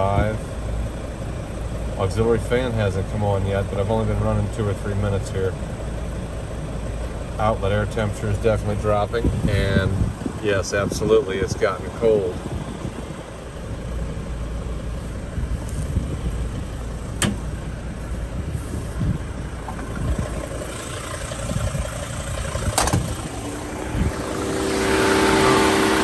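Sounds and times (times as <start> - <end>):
diesel engine idling: 0.0 - 26.0
electric fan whine: 9.2 - 26.0
sharp knocks: 22.8 - 23.1.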